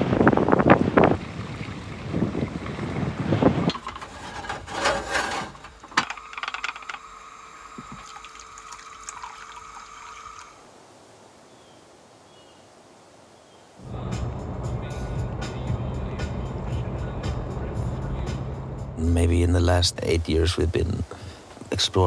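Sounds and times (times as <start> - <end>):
steady hum with held tones: 5.6 - 10.7.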